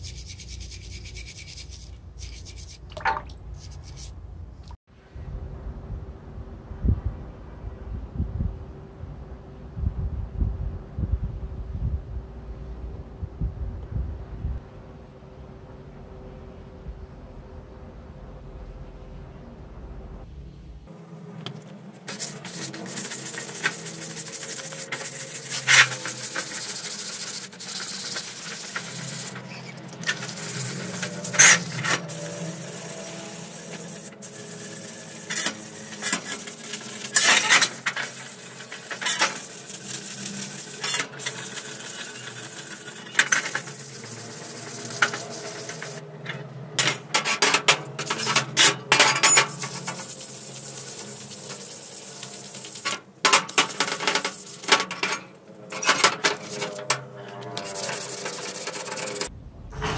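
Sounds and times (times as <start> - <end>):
sandpaper scraping rusty metal: 0.0 - 2.9, 3.5 - 4.2, 21.9 - 59.9.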